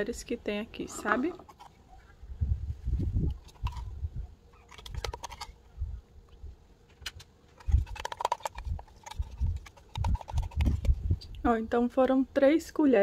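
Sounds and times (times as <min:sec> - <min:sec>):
plastic spoon scraping a pot: 0:03.2 - 0:04.0, 0:04.6 - 0:05.6, 0:07.6 - 0:11.0.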